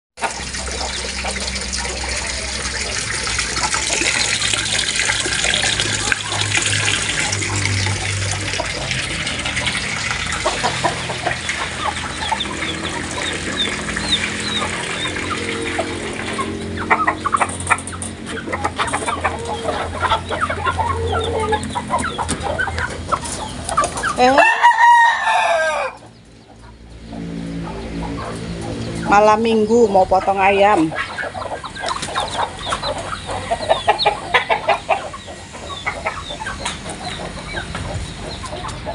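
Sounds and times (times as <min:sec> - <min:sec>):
chickens clucking and cackling: 0:00.2 - 0:38.9
rooster crowing: 0:24.2 - 0:26.1.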